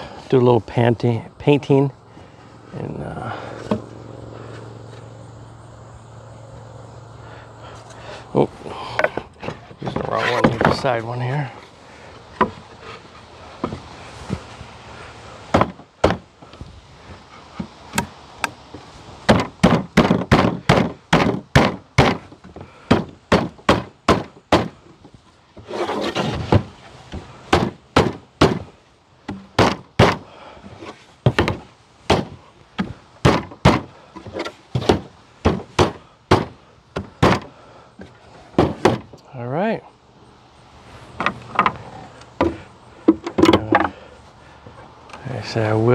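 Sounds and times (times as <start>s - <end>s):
wooden boards knocking together: 8.8s - 11.0s, 12.3s - 12.8s, 13.6s - 14.5s, 15.5s - 16.3s, 19.2s - 39.2s, 41.2s - 44.0s.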